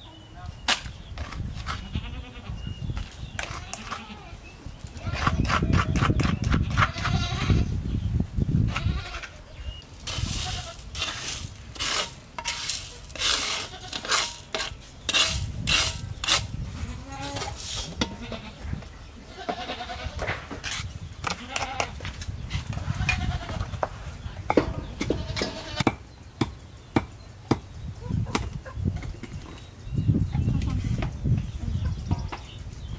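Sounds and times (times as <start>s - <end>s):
farm animals calling: 1.6s - 7.8s, 8.7s - 11.9s, 15.1s - 22.0s, 22.6s - 25.9s
salt scraped from metal wok: 10.1s - 16.5s, 17.4s - 18.0s.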